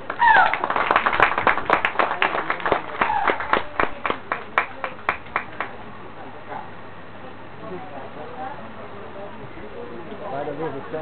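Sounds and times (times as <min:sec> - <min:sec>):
small audience clapping: 0:00.0 - 0:05.8.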